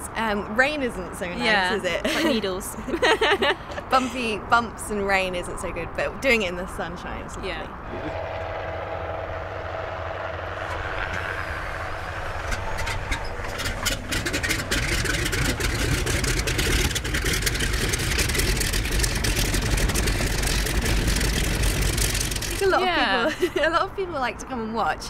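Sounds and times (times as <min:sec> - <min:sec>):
radial engine droning: 0:07.8 - 0:23.8
engine pops and coughs: 0:10.6 - 0:22.6.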